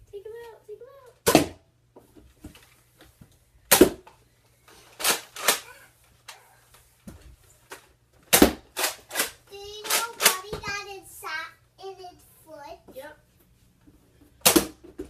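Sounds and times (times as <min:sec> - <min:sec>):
foam dart blasters popping: 0:01.2 - 0:01.6, 0:03.7 - 0:04.0, 0:08.3 - 0:09.3, 0:14.4 - 0:15.0.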